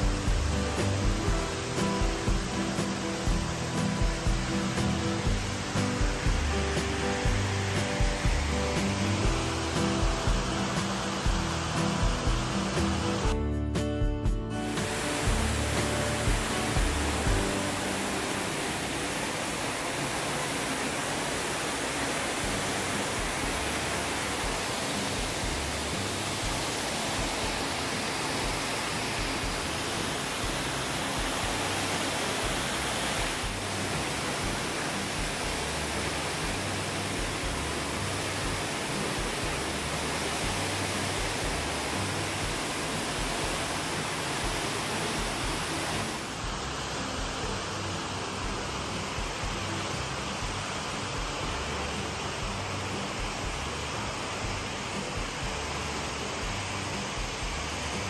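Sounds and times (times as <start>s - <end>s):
waterfall rushing: 0.0s - 13.4s, 14.5s - 58.0s.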